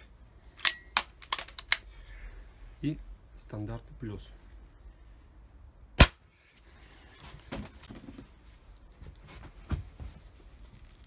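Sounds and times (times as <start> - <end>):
soft handling knocks and rustles: 6.6 - 11.0.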